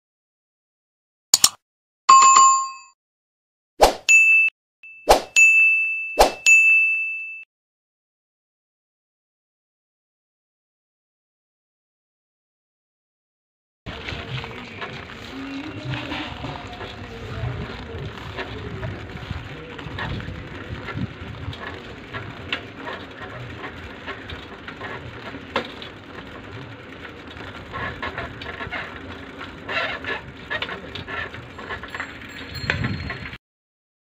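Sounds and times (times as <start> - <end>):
wind rumbling on microphone: 13.9 - 22.5, 32.5 - 33.4
road noise: 13.9 - 33.4.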